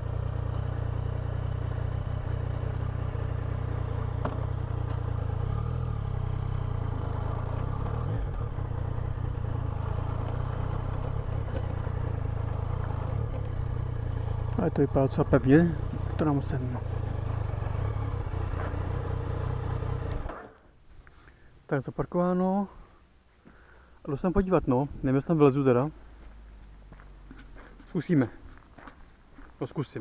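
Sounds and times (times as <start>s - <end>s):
motorcycle engine running at low revs: 0.0s - 20.6s.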